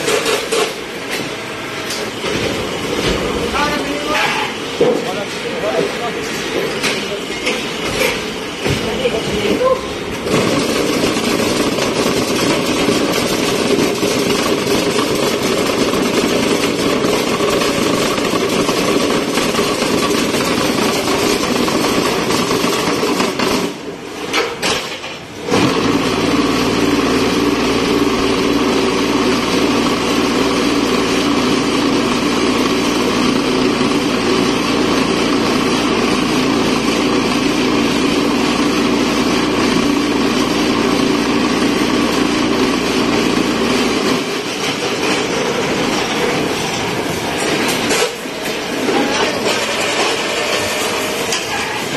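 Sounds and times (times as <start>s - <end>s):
block machine mechanical din: 7.7s - 23.9s.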